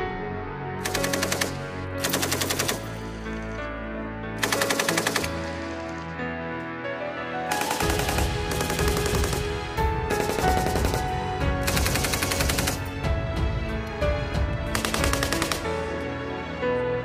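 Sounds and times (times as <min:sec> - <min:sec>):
background music: 0:00.0 - 0:17.0
machine gun bursts: 0:00.9 - 0:03.0, 0:04.4 - 0:05.5.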